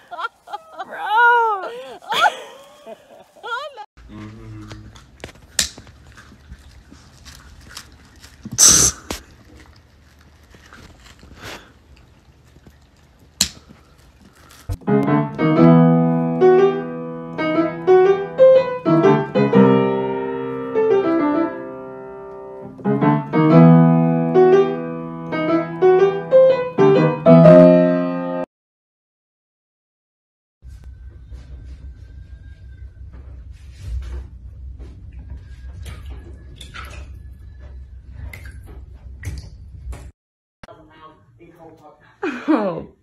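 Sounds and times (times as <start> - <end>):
solo piano music: 14.8 - 28.5.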